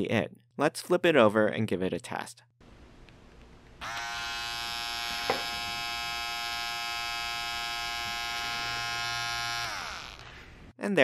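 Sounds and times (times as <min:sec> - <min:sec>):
electric trimmer motor whine: 0:03.8 - 0:10.7.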